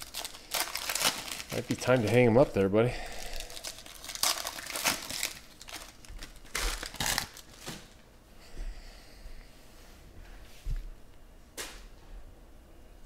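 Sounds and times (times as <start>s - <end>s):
foil wrappers crinkling: 0.0s - 8.0s.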